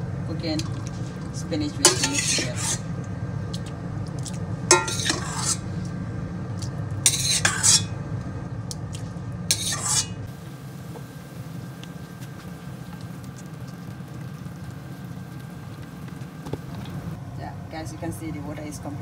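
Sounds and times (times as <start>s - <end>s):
steady low hum: 0.0s - 19.0s
soup bubbling: 0.5s - 7.8s, 8.7s - 17.2s
metal spoon scraping pot: 1.8s - 2.9s, 4.7s - 5.7s, 7.1s - 8.0s, 9.5s - 10.3s.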